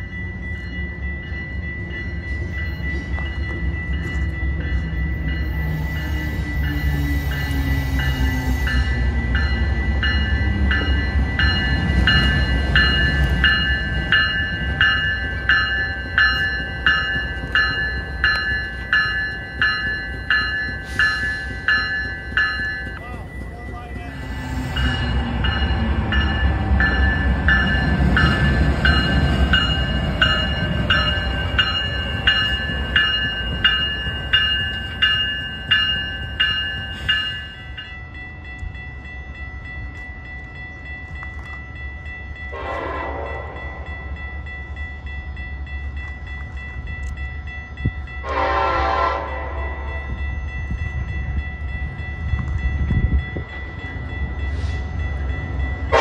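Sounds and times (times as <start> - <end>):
bell ringing: 0.0 - 48.6
train rumbling: 0.0 - 56.0
train horn blasts: 42.5 - 43.6, 48.2 - 50.0.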